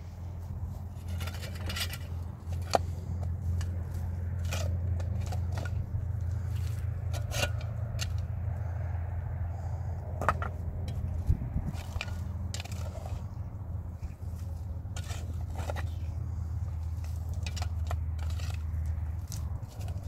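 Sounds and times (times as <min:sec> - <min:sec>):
steady low rumble: 0:00.0 - 0:20.0
stones knocking and scraping: 0:01.0 - 0:08.3, 0:10.2 - 0:13.3, 0:14.0 - 0:20.0.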